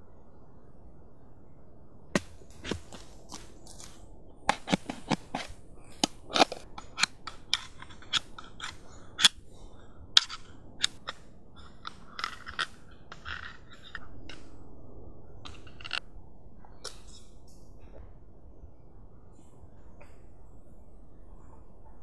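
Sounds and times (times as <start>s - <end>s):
knife scraping metal lid: 4.5s - 9.3s.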